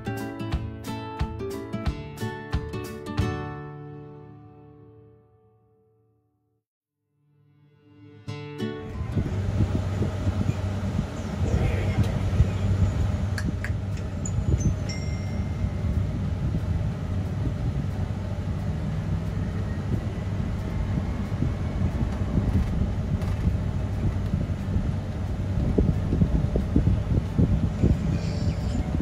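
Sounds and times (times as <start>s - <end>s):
car road and engine rumble: 8.6s - 29.0s.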